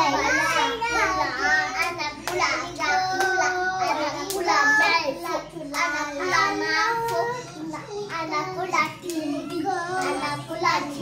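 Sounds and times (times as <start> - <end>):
children singing and chanting: 0.0 - 11.0
hand claps: 1.7 - 7.6, 8.8 - 10.3.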